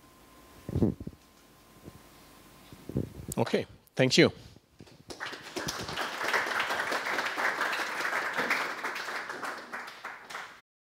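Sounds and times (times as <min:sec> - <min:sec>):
audience applauding: 0:05.1 - 0:10.6.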